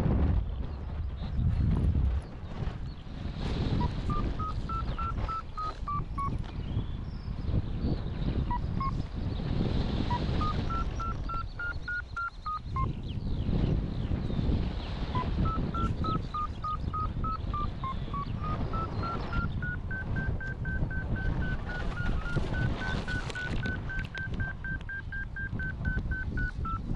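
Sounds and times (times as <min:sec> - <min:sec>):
wind on microphone: 0:00.0 - 0:26.9
variometer short beeps: 0:03.8 - 0:06.4, 0:08.5 - 0:09.0, 0:10.1 - 0:12.9, 0:15.2 - 0:26.9.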